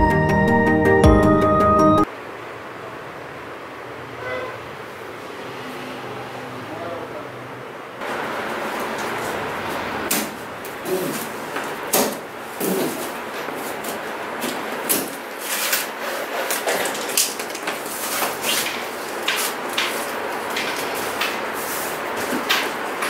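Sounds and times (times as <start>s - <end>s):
straps scraping cardboard: 14.9s - 20.2s.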